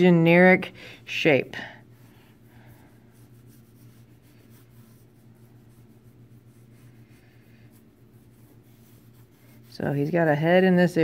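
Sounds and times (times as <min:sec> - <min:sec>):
pencil scratching on paper: 0:01.9 - 0:10.5.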